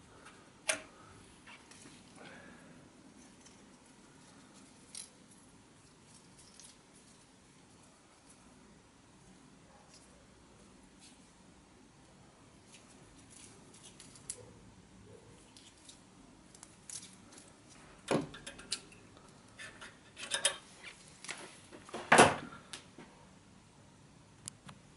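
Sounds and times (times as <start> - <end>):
metal tools clinking: 19.6 - 20.7.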